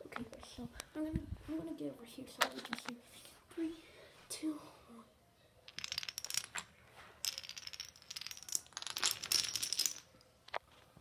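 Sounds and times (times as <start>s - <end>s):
dominoes clicking: 5.7s - 10.1s
wooden blocks clattering down: 5.7s - 10.2s.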